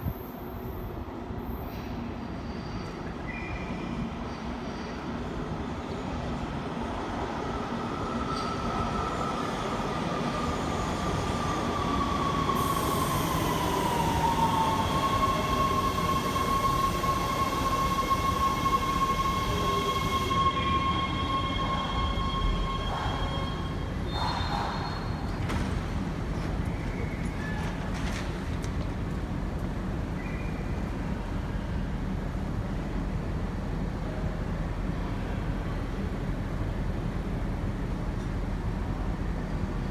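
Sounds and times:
subway train braking to a stop: 0.0 - 39.9
hiss of wheels and brakes: 12.3 - 20.4.

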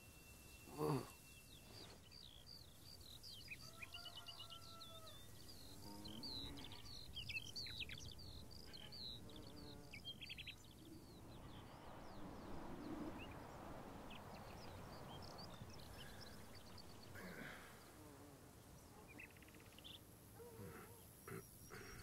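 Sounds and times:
soft even hiss: 0.0 - 3.5
small birds chirping: 0.0 - 22.0.

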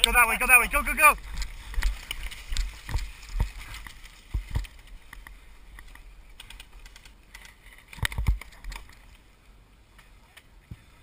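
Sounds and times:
clicks and knocks on camera: 1.4 - 9.0.

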